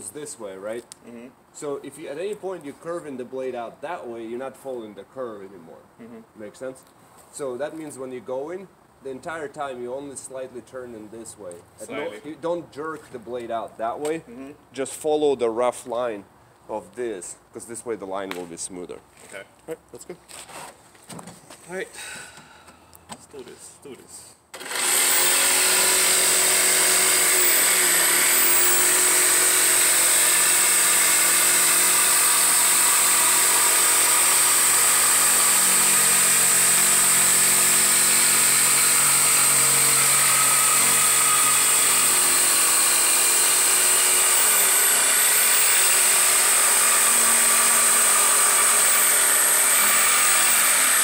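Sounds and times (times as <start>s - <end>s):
jigsaw cutting wood: 24.5s - 51.0s.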